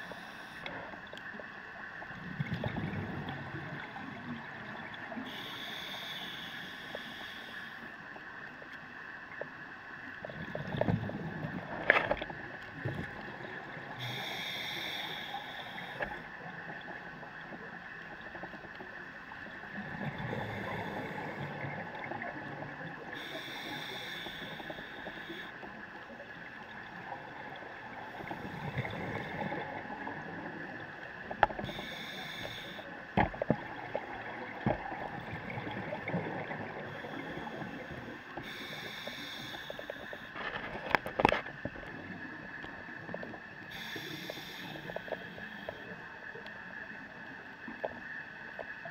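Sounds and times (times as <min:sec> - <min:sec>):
regulator hissing inhale: 0:00.0 - 0:00.8, 0:05.1 - 0:08.1, 0:13.9 - 0:16.5, 0:20.0 - 0:21.8, 0:23.1 - 0:25.7, 0:31.6 - 0:33.0, 0:36.8 - 0:40.4, 0:43.6 - 0:46.1
exhaled bubbles rumbling: 0:02.1 - 0:05.2.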